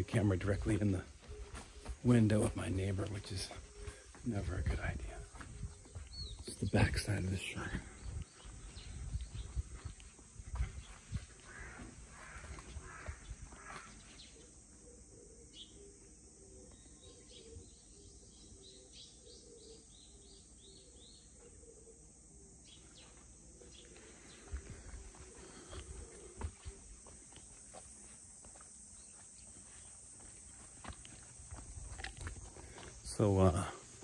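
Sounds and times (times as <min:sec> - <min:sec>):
footsteps: 0:00.0 - 0:06.9, 0:08.1 - 0:14.0, 0:23.8 - 0:34.0
bird chirping: 0:00.0 - 0:27.1.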